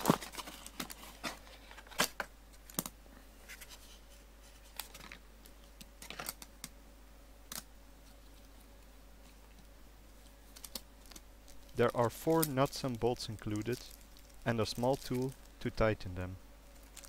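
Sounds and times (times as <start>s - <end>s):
hands handling cardboard and plastic: 0.0s - 6.8s.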